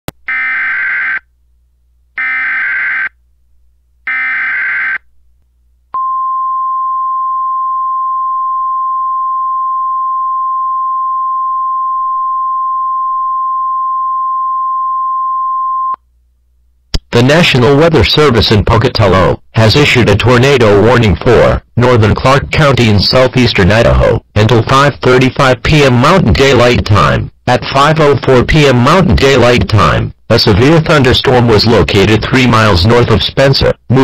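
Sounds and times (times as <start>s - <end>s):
steady attention tone: 2.2s - 3.2s, 5.9s - 16.0s.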